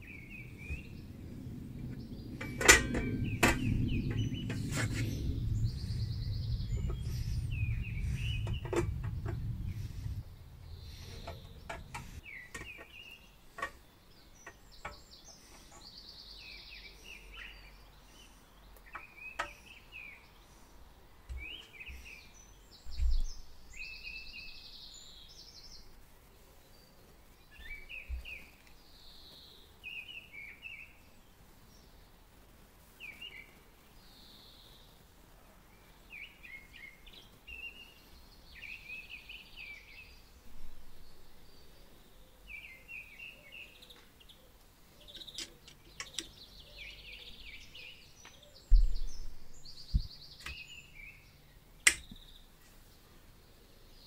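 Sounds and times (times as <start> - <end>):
small birds chirping: 0.0 - 54.0
dull knock: 48.7 - 49.3.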